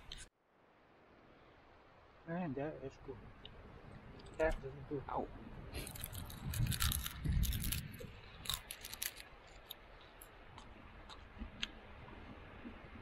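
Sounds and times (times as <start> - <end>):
crunching bites and chewing: 5.8 - 11.9.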